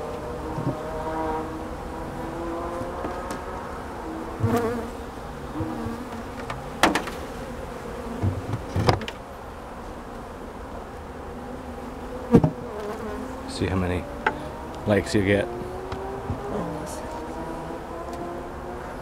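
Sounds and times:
honey bees buzzing: 0.0 - 19.0
wooden hive covers knocking: 5.5 - 7.4, 8.1 - 9.2, 12.3 - 12.9.

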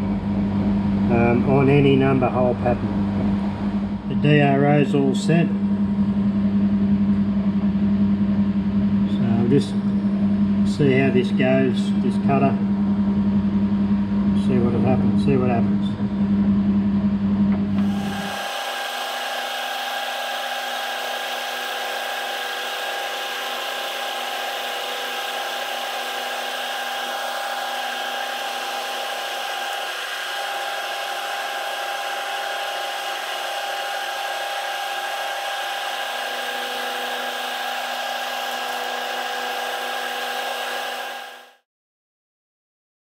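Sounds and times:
milling machine cutting steel: 17.8 - 41.6.

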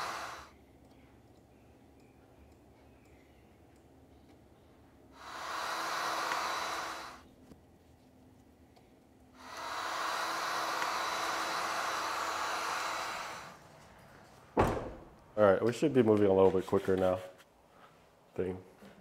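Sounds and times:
heat gun hissing: 0.0 - 0.5, 5.1 - 7.2, 9.4 - 13.6
faint room hum: 0.0 - 19.0.

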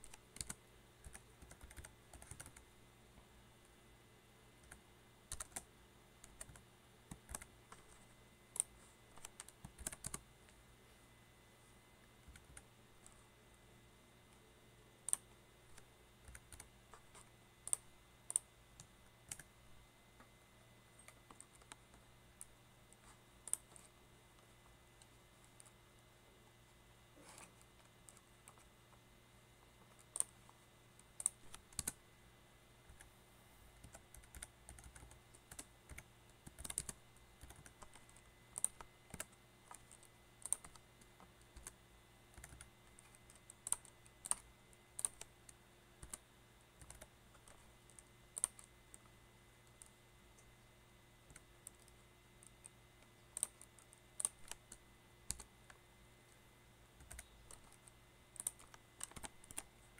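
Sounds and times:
computer keyboard typing: 0.0 - 2.7, 4.6 - 10.3, 12.2 - 13.2, 15.0 - 19.5, 21.0 - 24.0, 27.3 - 28.7, 29.7 - 32.0, 32.9 - 33.1, 33.8 - 50.0, 51.2 - 55.8, 57.0 - 59.9.

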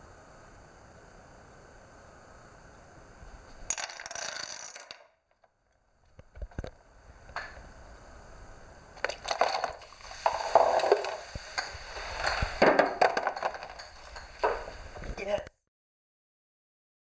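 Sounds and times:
small objects knocking and clattering: 3.7 - 6.7, 9.0 - 15.2.

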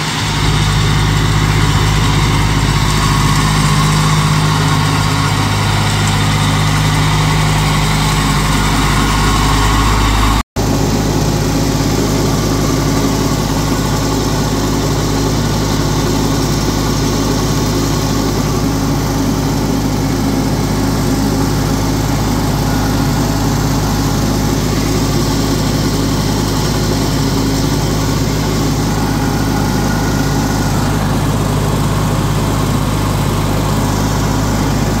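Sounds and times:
garden tractor engine running: 0.0 - 35.0.

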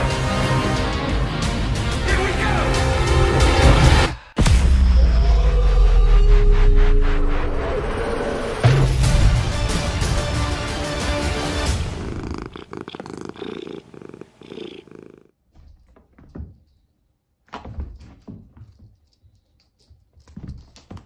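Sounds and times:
music: 0.0 - 7.8, 8.6 - 12.1
cat purring: 11.7 - 15.4.

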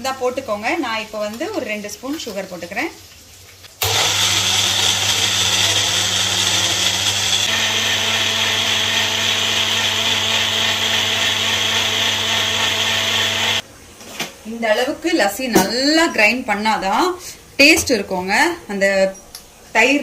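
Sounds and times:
electric mixer grinder running: 3.8 - 13.6.

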